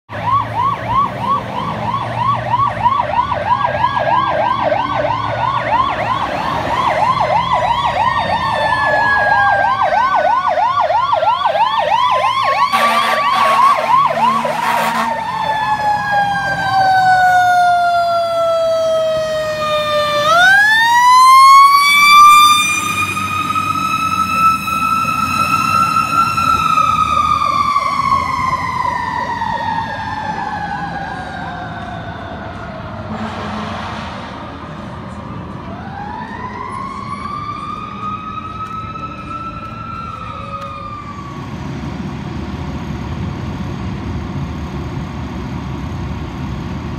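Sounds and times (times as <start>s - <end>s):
wailing siren: 0.1s - 33.8s, 34.5s - 43.0s
fast yelping siren: 0.2s - 32.4s
harsh horn blast: 12.6s - 15.3s, 33.1s - 34.3s.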